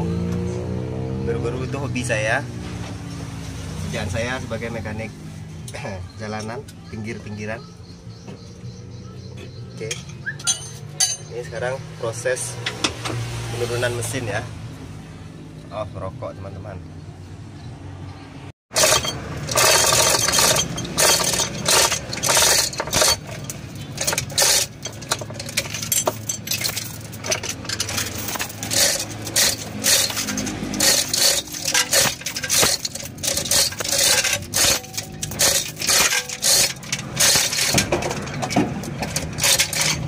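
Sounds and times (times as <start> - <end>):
chain hoist chain rattling: 18.7 - 40.0.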